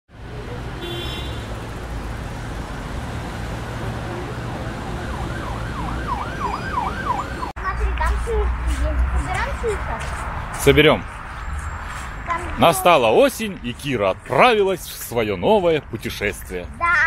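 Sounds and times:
siren wailing: 4.1s - 7.5s.

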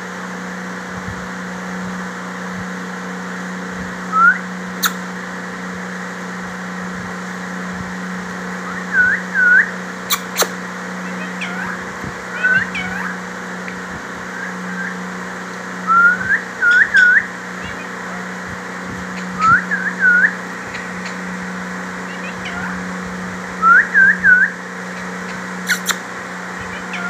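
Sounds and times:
parakeet whistling: 4.1s - 5.0s, 8.6s - 13.2s, 14.3s - 15.1s, 15.8s - 18.3s, 19.1s - 22.9s, 23.6s - 26.0s, 26.6s - 27.0s.

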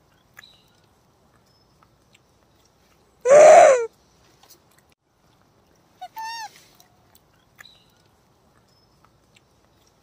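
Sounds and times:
baby monkey crying: 3.3s - 3.9s, 6.0s - 6.6s.

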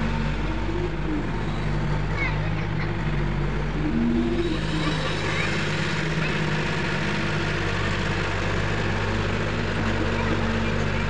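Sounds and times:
excavator diesel engine running: 0.0s - 11.0s
brief higher tone: 3.7s - 6.4s.

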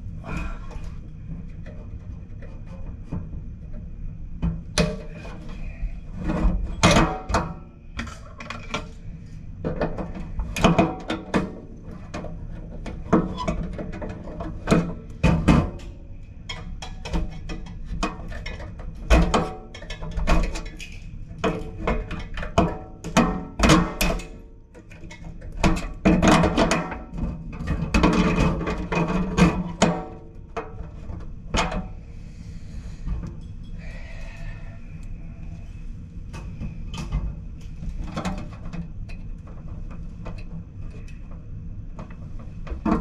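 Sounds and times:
metallic knocks and clatter: 9.6s - 31.9s.

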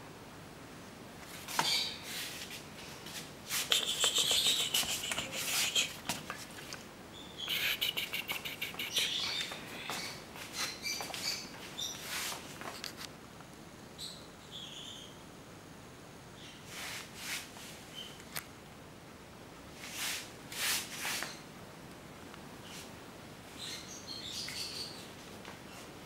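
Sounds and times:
kittens squeaking: 3.6s - 6.2s, 7.4s - 11.9s
kitten claws clicking on tile: 3.7s - 6.4s.

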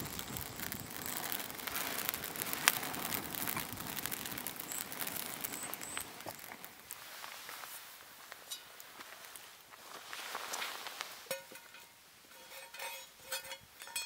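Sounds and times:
campfire crackling and popping: 0.0s - 12.4s.

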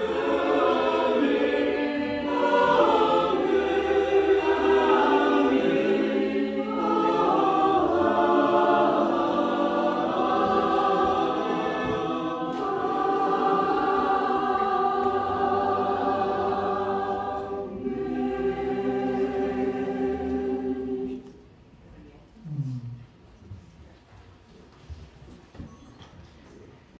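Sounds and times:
choir singing sustained chords: 0.0s - 21.4s.

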